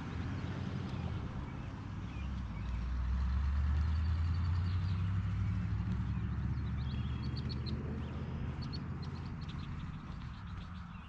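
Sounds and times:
passing motor vehicle engine hum: 0:00.0 - 0:11.0
small birds chirping: 0:00.0 - 0:11.0.

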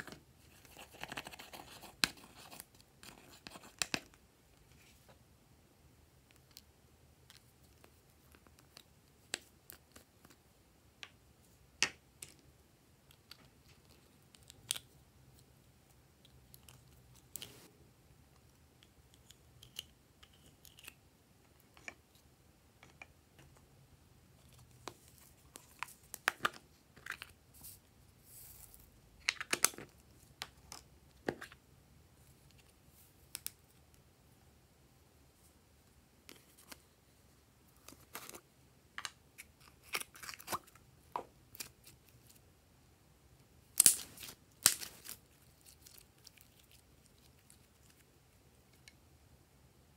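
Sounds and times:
crinkles: 0:43.7 - 0:48.9.

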